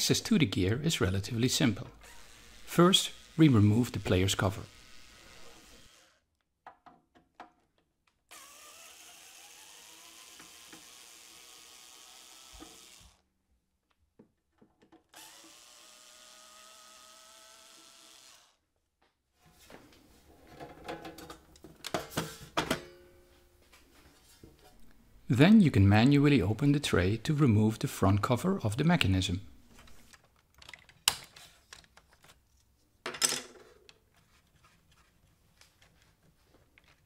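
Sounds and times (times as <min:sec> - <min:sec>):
electric screwdriver whining: 0:02.0 - 0:06.2, 0:08.3 - 0:13.2, 0:15.1 - 0:18.6.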